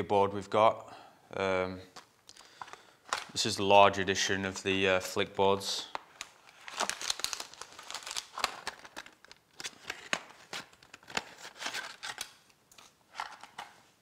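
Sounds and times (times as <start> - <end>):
plastic bag crinkling: 5.8 - 13.7.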